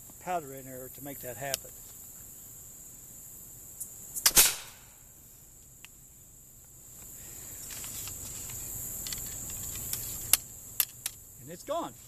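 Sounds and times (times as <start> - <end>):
insects chirring: 0.0 - 12.0
rifle shot: 4.2 - 5.0.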